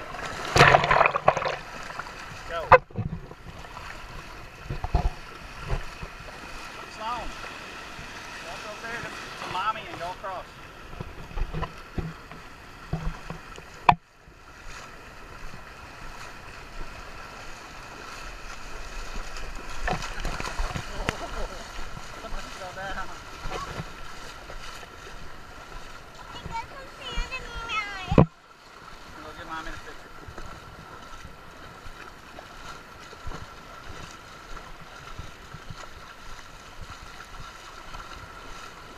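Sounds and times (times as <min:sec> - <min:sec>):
feet splashing through water: 0:00.0 - 0:38.9
shallow surf washing: 0:00.0 - 0:38.9
wind rumbling on microphone: 0:30.0 - 0:38.9.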